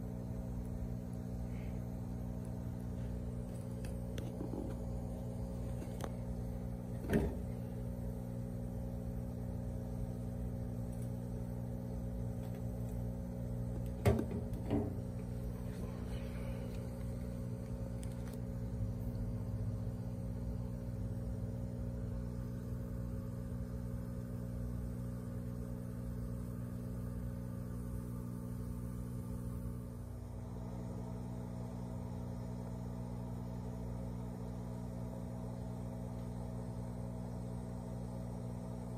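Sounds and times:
low electrical hum: 0.0 - 38.9.

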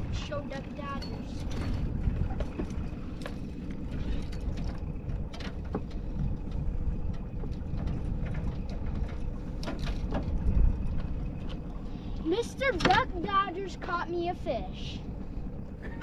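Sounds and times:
outboard motor running: 0.0 - 16.0
knocks and clicks in metal boat: 4.2 - 11.6.

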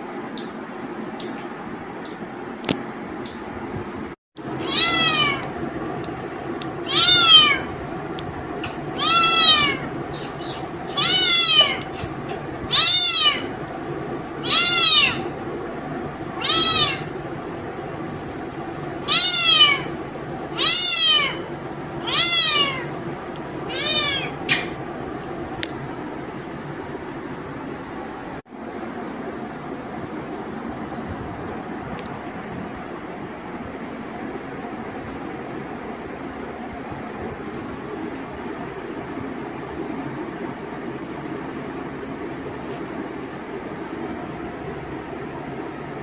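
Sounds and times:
kitten meowing: 4.6 - 5.4, 6.9 - 7.7, 8.6 - 12.1, 12.7 - 13.4, 14.4 - 15.2, 16.4 - 17.1, 19.1 - 19.9, 20.6 - 21.4, 22.0 - 22.8, 23.7 - 24.7.

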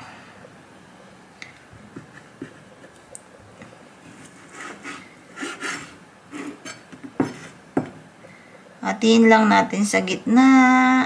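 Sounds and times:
knife scraping across plastic board: 4.0 - 7.6
knife tapping cutting board: 6.9 - 8.0.

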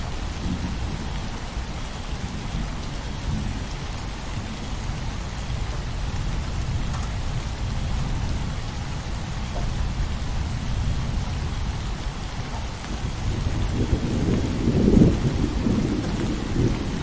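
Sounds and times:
crickets chirping: 0.0 - 17.0
distant thunder rumble: 0.0 - 17.0
steady rain: 0.0 - 17.0.

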